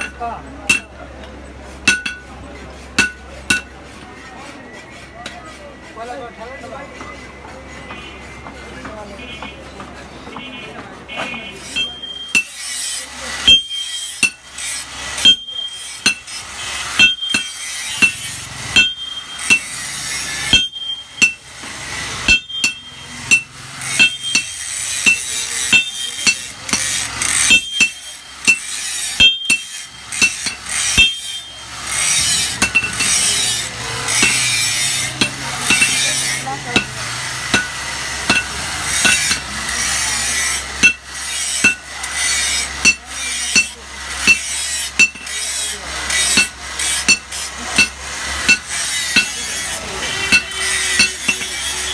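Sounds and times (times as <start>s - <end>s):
hammer ringing on anvil: 0.0s - 1.0s, 1.8s - 2.3s, 3.0s - 3.8s, 11.7s - 12.7s, 13.4s - 14.5s, 15.1s - 51.9s.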